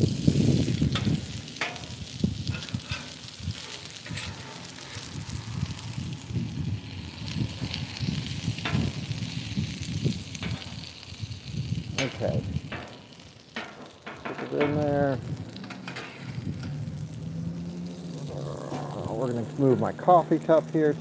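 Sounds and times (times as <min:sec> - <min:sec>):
low rumbling noise: 0:00.0 - 0:13.2, 0:14.2 - 0:21.0
food sizzling on a griddle: 0:00.0 - 0:21.0
metal spatulas scraping and clacking: 0:02.6 - 0:05.0, 0:15.6 - 0:16.3.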